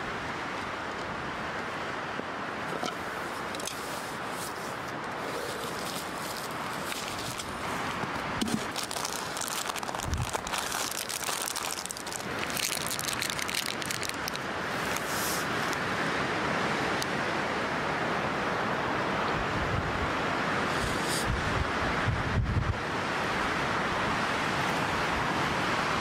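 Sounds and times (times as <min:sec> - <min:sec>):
wind noise: 0:00.0 - 0:15.8, 0:19.3 - 0:24.2
plastic wrapper crinkling: 0:05.3 - 0:15.2.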